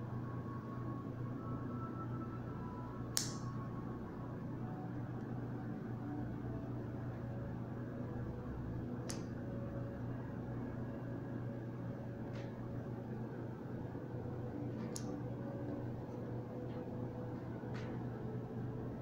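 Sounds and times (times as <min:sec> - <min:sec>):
low fan hum: 0:00.0 - 0:19.0.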